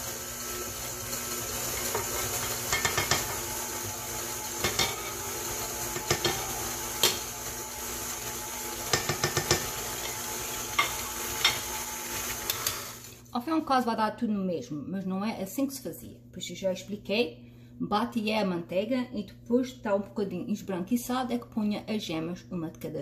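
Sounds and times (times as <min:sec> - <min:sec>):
stand mixer motor running: 0:00.0 - 0:13.1.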